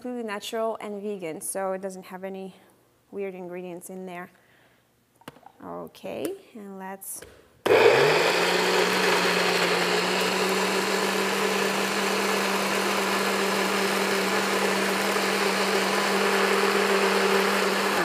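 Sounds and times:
blender motor humming: 7.7s - 18.0s.

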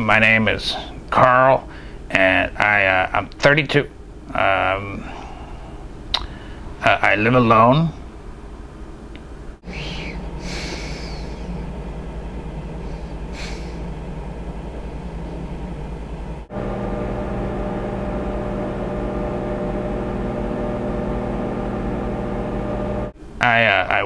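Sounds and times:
refrigerator hum: 0.2s - 23.2s
microwave oven running: 10.3s - 23.2s.

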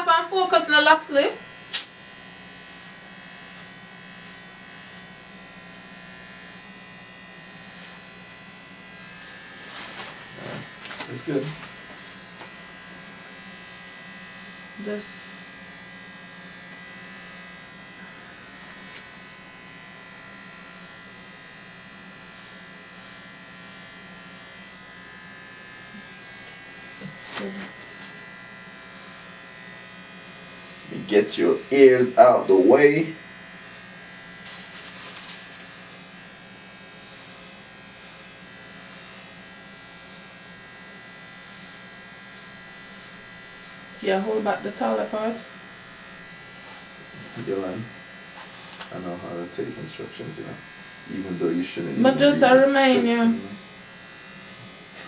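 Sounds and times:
electric hair clippers humming: 0.0s - 55.0s.

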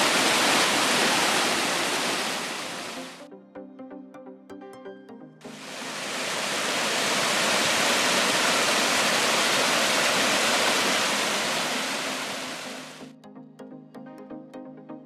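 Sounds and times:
water cascading over rocks: 0.0s - 3.2s, 5.5s - 13.0s.

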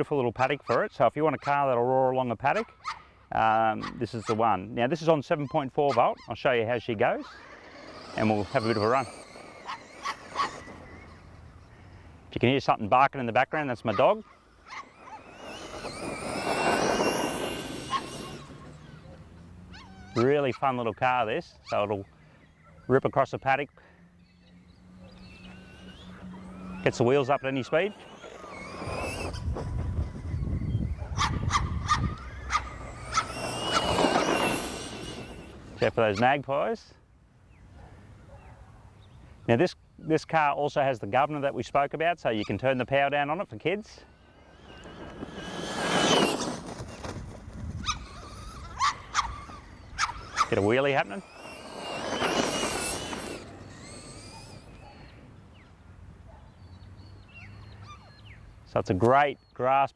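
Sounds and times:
toy truck electric motor whining: 5.3s - 12.3s, 13.4s - 23.1s, 23.8s - 36.5s, 42.4s - 55.6s
faint bird chirps: 18.2s - 29.4s, 48.1s - 59.7s
tyres rushing through grass: 32.3s - 35.9s.

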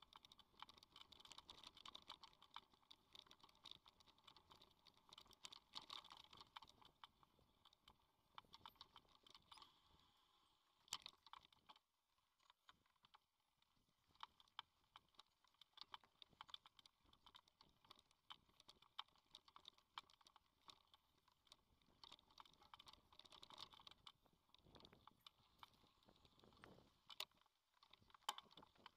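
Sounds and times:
mountain bike clicking and rattling: 0.0s - 7.8s, 14.2s - 28.9s.

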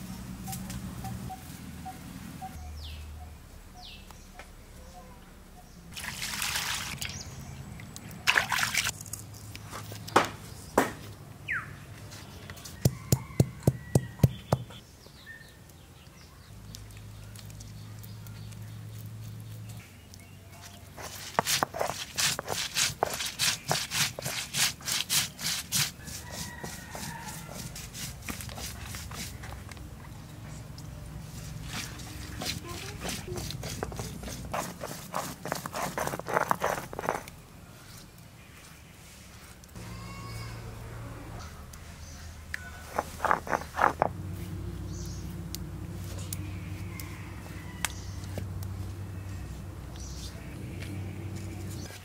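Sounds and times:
grinding stone knocking on stone slab: 42.9s - 44.1s.

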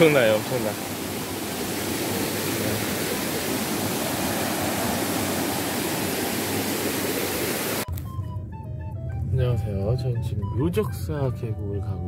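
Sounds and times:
stream water rushing over rocks: 0.0s - 7.9s.

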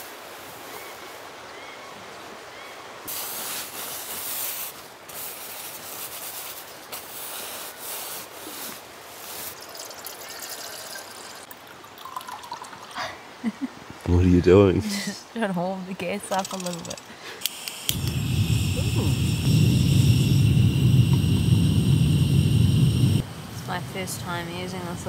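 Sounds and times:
finger scraping frost on tent fabric: 3.1s - 9.5s.

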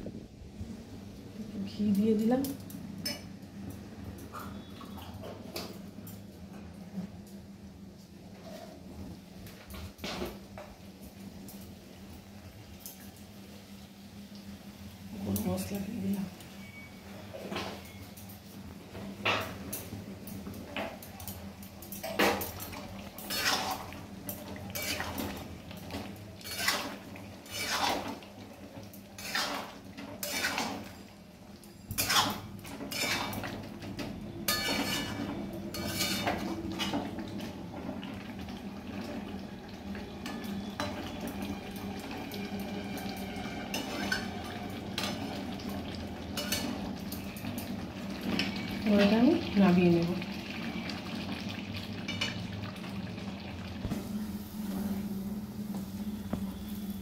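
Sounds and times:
metal spatula scraping a pan: 23.2s - 25.4s, 26.4s - 28.2s, 29.2s - 31.1s, 31.9s - 33.5s, 34.5s - 37.0s, 42.9s - 45.3s.

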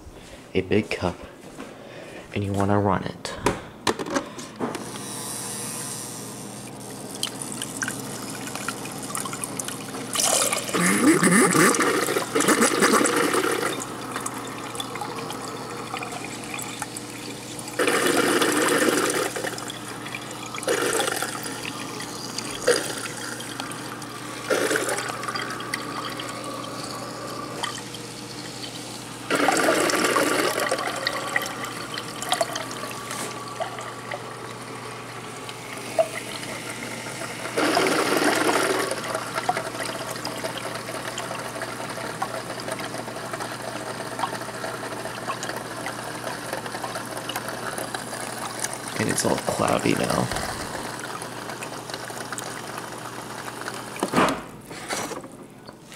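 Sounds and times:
water stream into glass cup: 6.8s - 34.7s.

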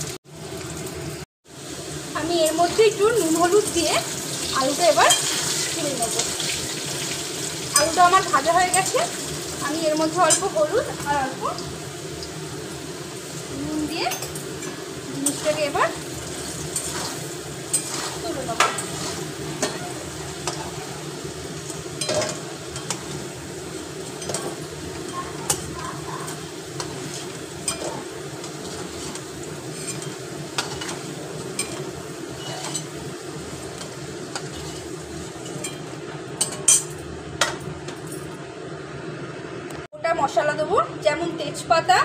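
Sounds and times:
potatoes sizzling in oil: 0.0s - 37.8s
metal spatula scraping and clinking: 5.0s - 5.5s, 16.7s - 20.8s, 21.7s - 23.2s, 24.0s - 33.0s, 33.8s - 37.0s.

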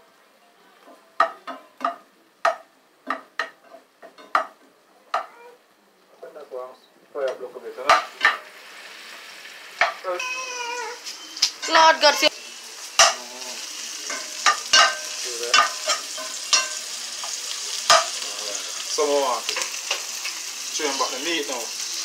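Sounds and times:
food sizzling: 0.0s - 22.0s
spoon scraping frying pan: 14.0s - 18.2s.

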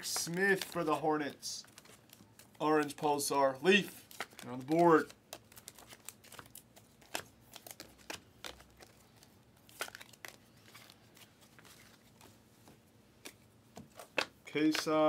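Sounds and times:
trading cards flipping: 4.0s - 15.0s.

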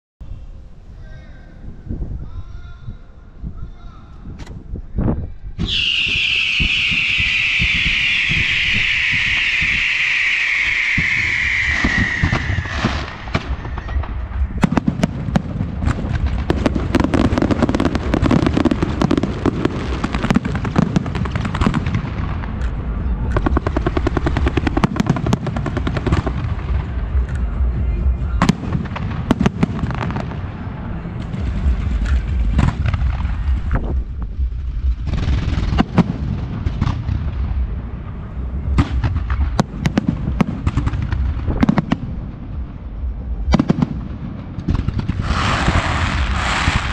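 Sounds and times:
fireworks shells bursting bangs: 5.6s - 22.8s
fireworks crackling and popping: 5.6s - 37.8s, 38.5s - 46.9s
low rumble: 6.3s - 46.9s.

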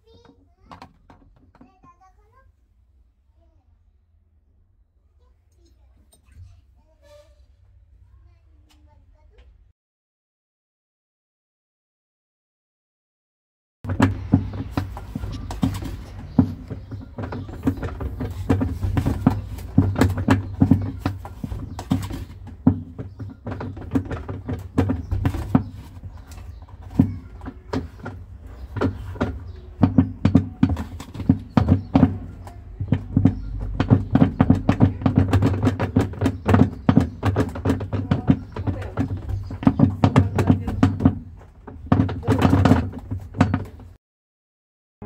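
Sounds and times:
plastic tub clicking and knocking: 0.1s - 2.1s, 13.9s - 44.0s.

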